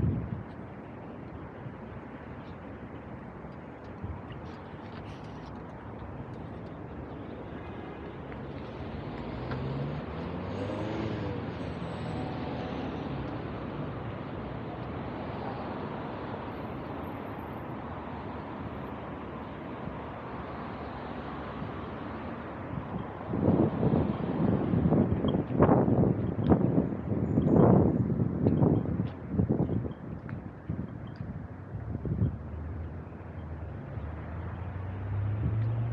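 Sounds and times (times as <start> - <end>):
vehicle passing by: 7.9 - 14.6, 33.7 - 35.9.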